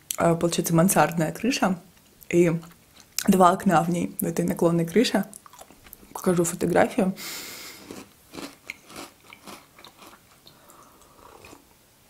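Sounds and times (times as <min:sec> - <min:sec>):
cookie crunching: 0:07.8 - 0:10.6.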